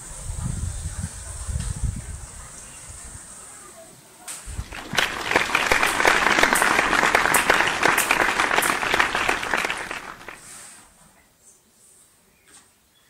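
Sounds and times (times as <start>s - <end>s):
crowd applause: 4.5s - 10.4s.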